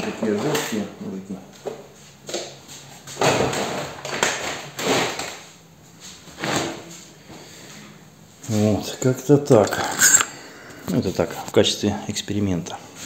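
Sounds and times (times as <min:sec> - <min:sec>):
plastic containers scraping and knocking: 0:00.0 - 0:00.9, 0:03.1 - 0:05.5.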